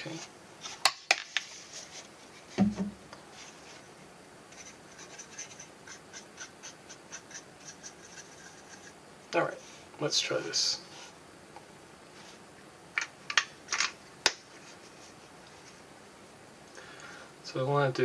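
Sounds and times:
bottle set down on bench: 0:02.6 - 0:03.0.

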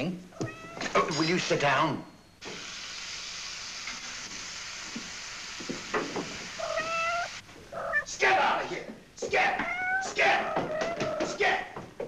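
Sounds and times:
cat meowing: 0:00.3 - 0:01.0, 0:06.6 - 0:08.1, 0:09.4 - 0:11.4
food sizzling in a frying pan: 0:02.4 - 0:07.5.

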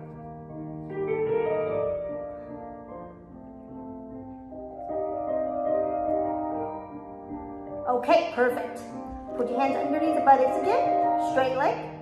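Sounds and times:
soft keyboard music: 0:00.0 - 0:12.0.

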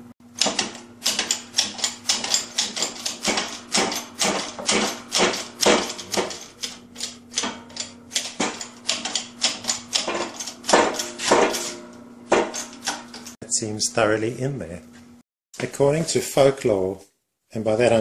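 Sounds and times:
hydraulic press pump clicking: 0:00.4 - 0:11.6.

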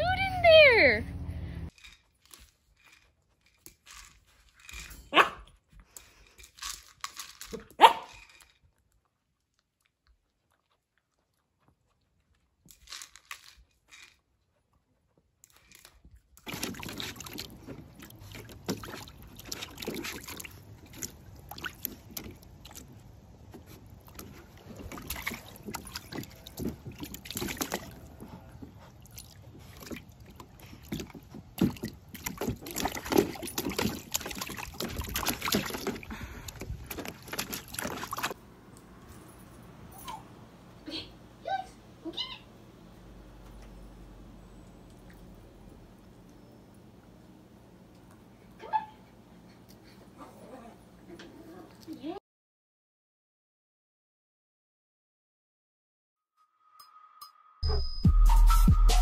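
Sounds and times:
puppy splashing in water: 0:16.4 - 0:38.4.

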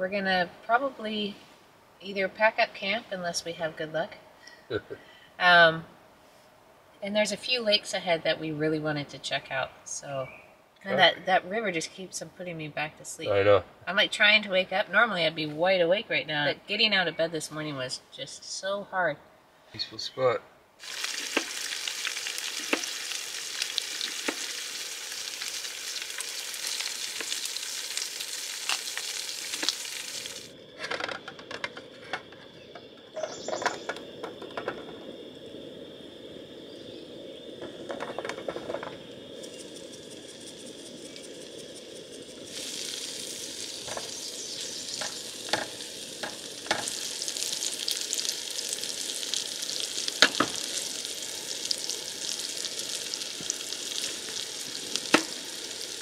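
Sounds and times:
food sizzling in frying pan: 0:20.8 - 0:30.6, 0:32.6 - 0:56.0.

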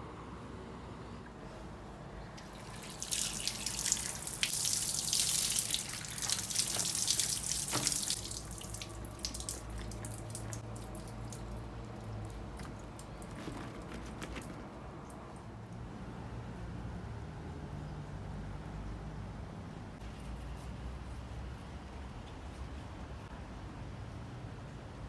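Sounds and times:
water dripping: 0:02.4 - 0:13.6
tap water splashing in colander: 0:02.4 - 0:15.2.

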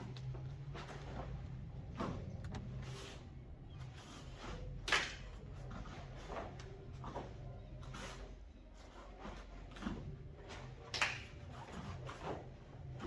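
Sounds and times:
bare feet on foam mats: 0:00.0 - 0:13.0
steady low hum: 0:00.0 - 0:13.0
uniform swishes and snaps: 0:04.0 - 0:13.0.

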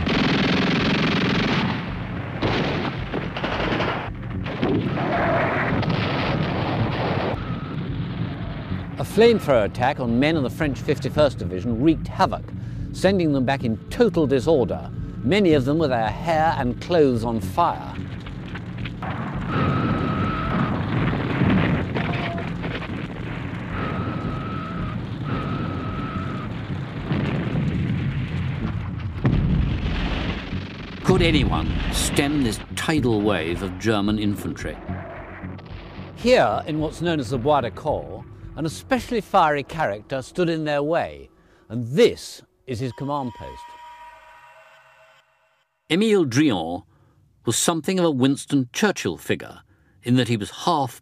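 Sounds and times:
gunfire: 0:00.0 - 0:08.6
artillery shells exploding: 0:00.0 - 0:09.5, 0:18.0 - 0:34.6
steady high tone: 0:42.0 - 0:45.9.

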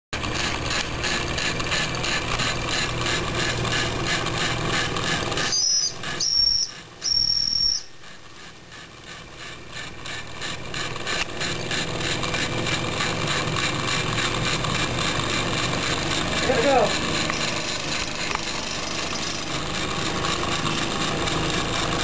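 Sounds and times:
steam whistle toots: 0:05.4 - 0:08.0.

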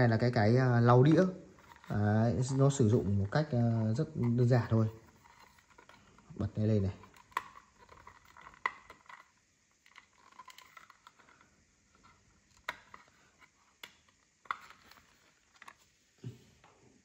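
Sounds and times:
plastic clicks and scrapes: 0:01.1 - 0:06.3, 0:07.0 - 0:15.9.

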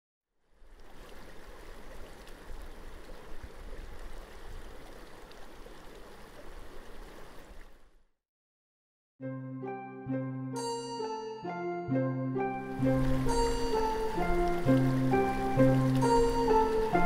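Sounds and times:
water rushing: 0:00.5 - 0:08.0, 0:12.6 - 0:17.0.

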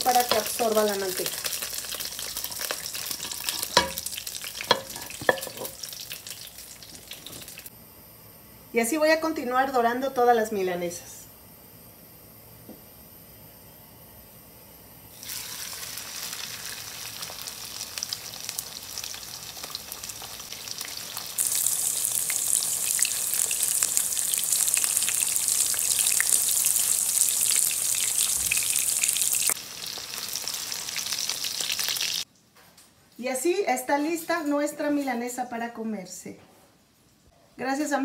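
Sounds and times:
cutlet sizzling in a pan: 0:00.0 - 0:07.7, 0:15.1 - 0:32.3.

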